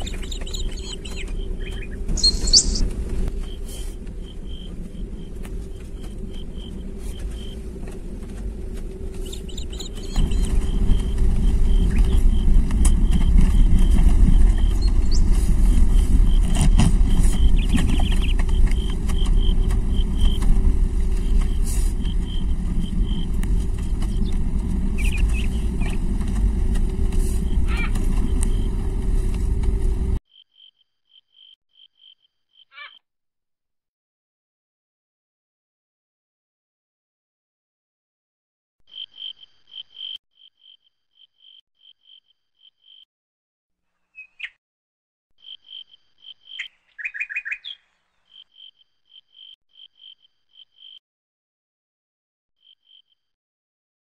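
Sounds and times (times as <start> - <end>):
high chirp: 0.0 - 2.8
car engine and road rumble: 0.0 - 30.2
crickets or frogs trilling: 45.4 - 46.8, 47.6 - 51.0.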